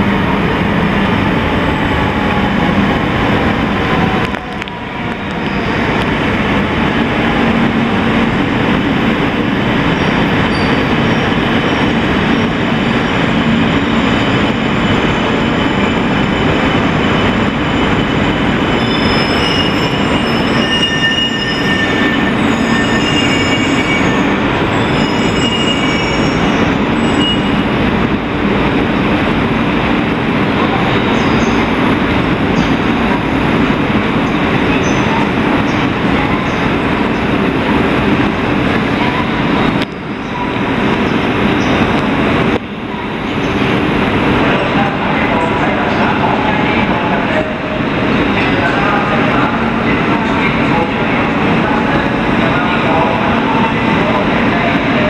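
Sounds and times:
train running noise: 0:00.0 - 0:55.0
train brakes squealing: 0:09.9 - 0:27.7.

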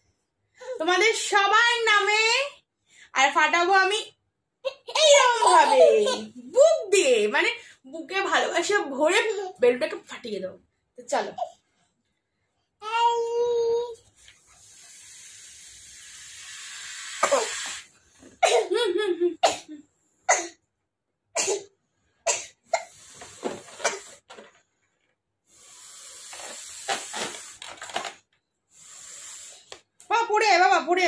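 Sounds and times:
short puffs and breaths: 0:14.0 - 0:18.4, 0:22.8 - 0:24.4, 0:25.4 - 0:27.8, 0:28.7 - 0:30.0
air blown into balloon: 0:14.5 - 0:17.9, 0:22.8 - 0:24.2, 0:25.5 - 0:27.6, 0:28.7 - 0:29.7.

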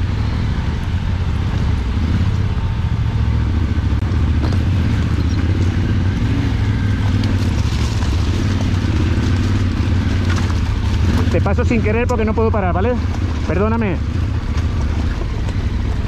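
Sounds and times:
motorcycle engine running: 0:00.0 - 0:16.0.

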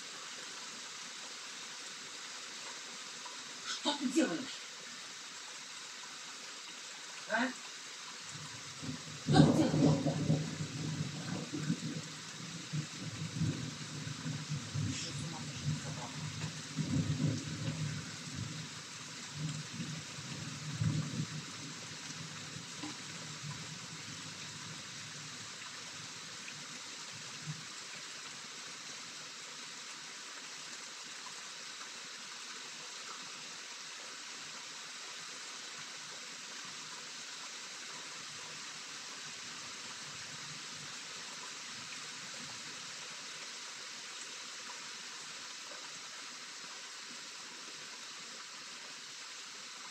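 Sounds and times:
steady rain falling: 0:00.0 - 0:49.9
low uneven rumble: 0:08.2 - 0:25.5.

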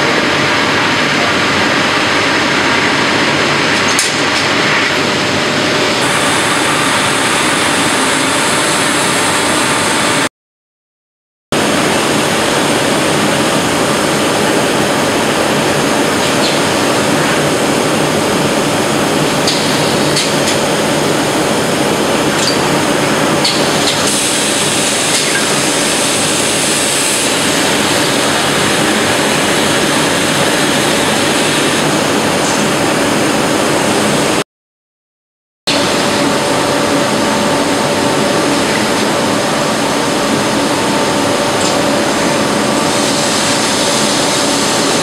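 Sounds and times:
machinery noise: 0:00.0 - 0:10.3, 0:11.6 - 0:34.4
steady hums: 0:00.0 - 0:10.3, 0:11.6 - 0:34.4, 0:35.7 - 0:45.0.

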